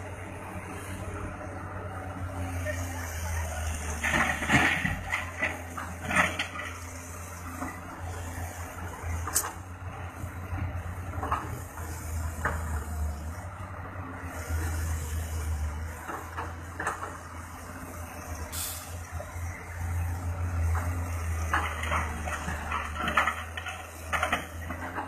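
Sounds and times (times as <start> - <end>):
excavator diesel engine rumble: 0.0 - 25.0
short hiss: 18.6 - 19.0.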